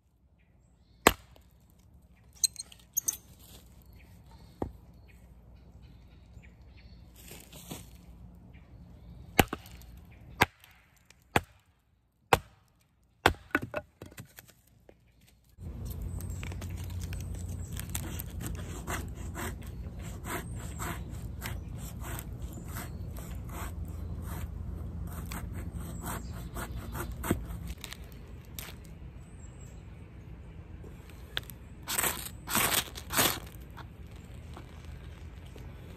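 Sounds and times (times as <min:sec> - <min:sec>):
wood splitting knocks: 0:13.2 - 0:14.5
knife scraping wood: 0:15.7 - 0:28.0, 0:31.3 - 0:35.9.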